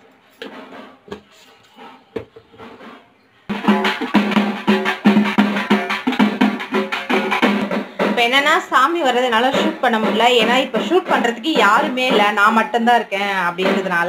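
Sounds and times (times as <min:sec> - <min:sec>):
sharp knocks: 0:03.5 - 0:08.4, 0:09.3 - 0:12.7, 0:13.6 - 0:14.0
drums beaten with sticks: 0:03.5 - 0:14.0.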